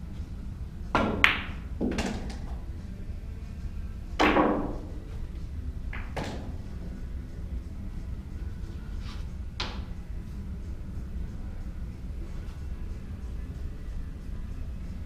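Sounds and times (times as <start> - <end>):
cue tip hitting ball: 1.0 - 2.6, 4.2 - 5.1, 5.9 - 6.8, 9.6 - 9.9
pool balls clacking: 1.0 - 2.6, 4.2 - 5.1, 5.9 - 6.9.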